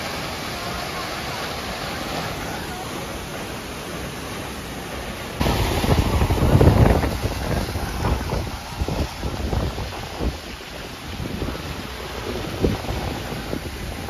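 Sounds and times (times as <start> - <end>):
steady rushing noise: 0.0 - 14.0
gusty wind buffeting microphone: 5.4 - 14.0.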